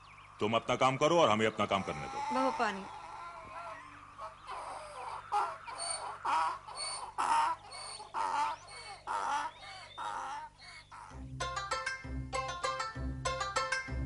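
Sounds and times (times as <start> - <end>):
hens clucking: 1.3 - 11.2.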